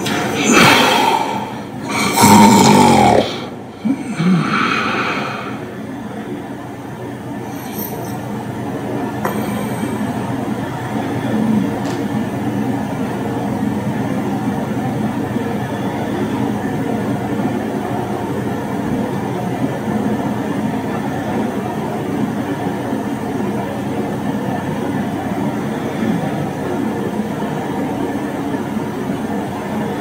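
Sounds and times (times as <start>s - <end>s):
low hum: 0.0s - 8.6s.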